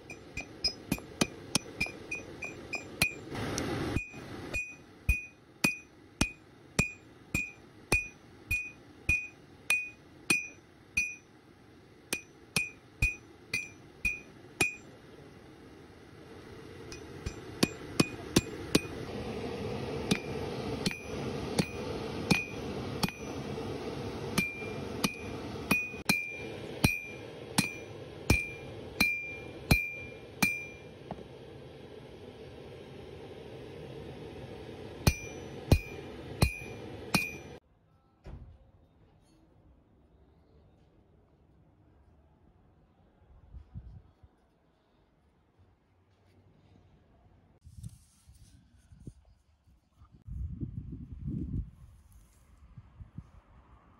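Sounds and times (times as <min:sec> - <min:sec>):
hammer ringing on anvil: 0:00.0 - 0:03.3, 0:04.0 - 0:11.3, 0:12.1 - 0:14.9, 0:16.9 - 0:19.0, 0:20.1 - 0:23.6, 0:24.3 - 0:31.0, 0:35.0 - 0:37.6.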